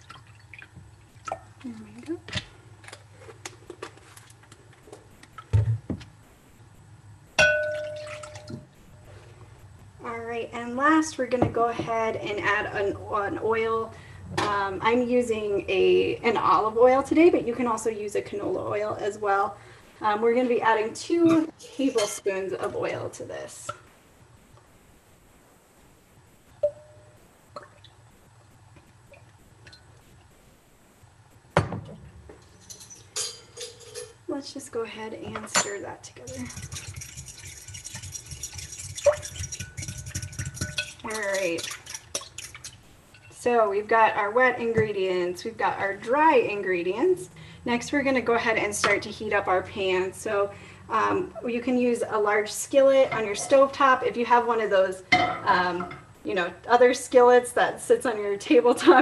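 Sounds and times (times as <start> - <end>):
kitchenware sharp ringing clang: 7.4 - 8.6
metal spoon tapping glass: 7.4 - 8.6.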